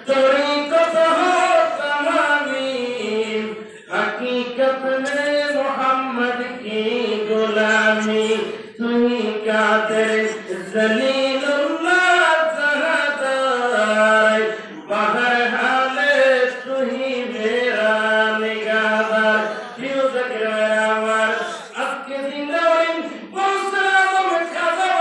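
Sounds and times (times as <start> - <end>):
man chanting: 0.0 - 25.0
breath: 3.6 - 3.9.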